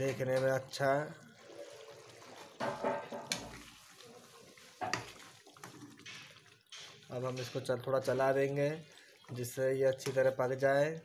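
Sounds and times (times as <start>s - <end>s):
curry bubbling in pan: 0.0s - 11.0s.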